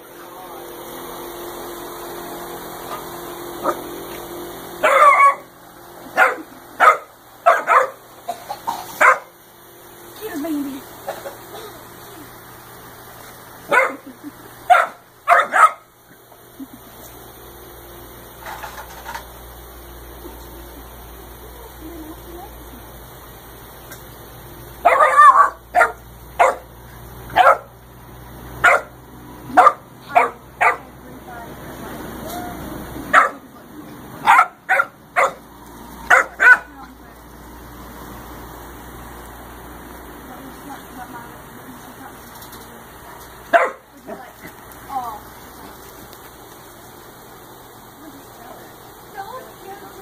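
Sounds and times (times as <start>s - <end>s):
dog barking: 4.8s - 5.5s, 6.2s - 8.0s, 9.0s - 9.3s, 13.7s - 14.1s, 14.7s - 15.9s, 24.8s - 26.7s, 27.3s - 27.7s, 28.6s - 28.9s, 29.5s - 30.9s, 33.1s - 33.4s, 34.2s - 35.4s, 36.1s - 36.7s, 43.5s - 43.9s.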